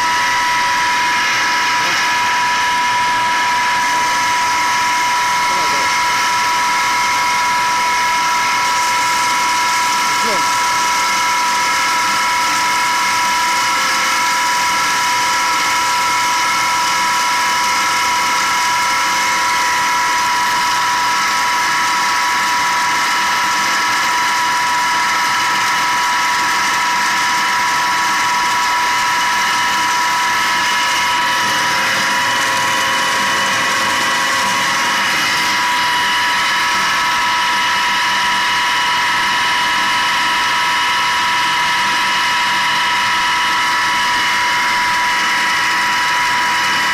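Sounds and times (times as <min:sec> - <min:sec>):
pump high whine: 0:00.0 - 0:46.9.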